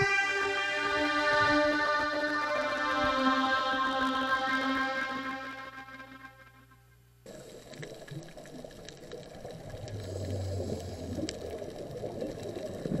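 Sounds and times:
muffled churning underwater noise: 7.2 - 13.0
small underwater clicks and crackles: 7.2 - 13.0.

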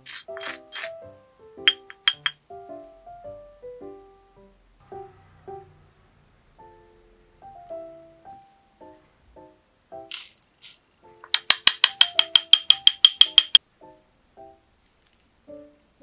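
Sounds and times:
powder pouring hiss: 0.0 - 1.0, 10.1 - 10.8
mortar and pestle rattling taps: 1.7 - 2.4, 11.2 - 13.6.

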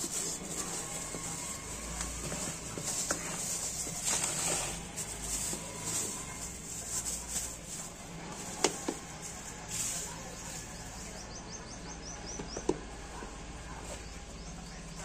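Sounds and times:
plastic bags crinkling: 0.0 - 10.7
bird chirping: 10.3 - 12.8.

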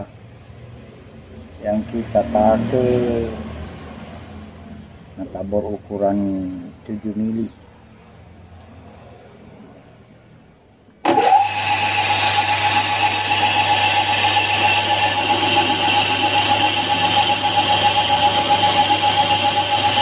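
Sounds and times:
electric drill boring metal: 11.1 - 20.0.

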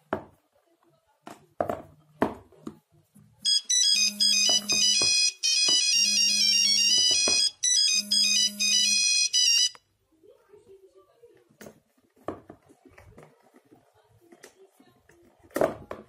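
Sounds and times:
mobile phone ringtone melody: 3.4 - 9.8.

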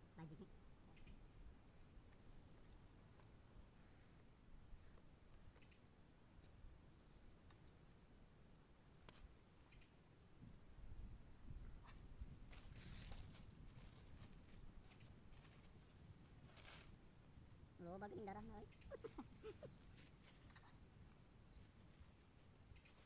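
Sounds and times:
insects shrilling: 14.8 - 21.3
falling chirps: 18.6 - 20.8.

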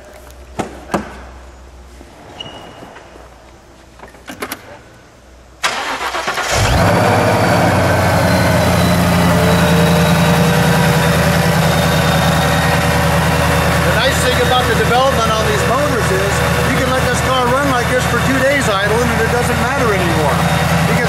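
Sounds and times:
starter motor cranking: 5.6 - 21.0
engine idling loudly: 6.6 - 21.0.

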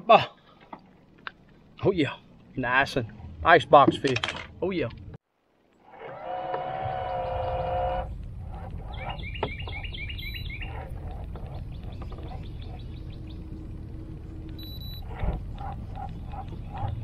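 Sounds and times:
low steady rumble: 0.4 - 17.0
bird chirping: 8.8 - 17.0.

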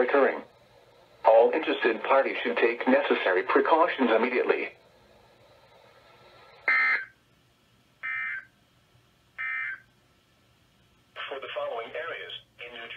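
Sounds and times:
faint radio hiss: 0.0 - 12.9
data tone bursts: 6.6 - 7.1, 8.0 - 8.5.

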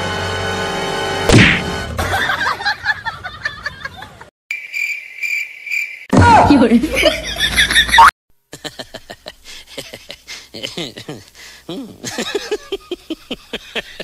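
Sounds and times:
sharp slap: 1.3 - 1.7
high pulsing chirp: 4.5 - 6.1.

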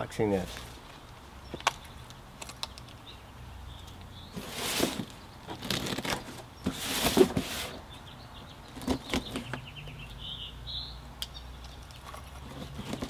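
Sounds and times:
cardboard rustling: 4.3 - 7.9, 8.7 - 9.6, 12.4 - 13.0
packing tape ripping: 5.0 - 6.3.

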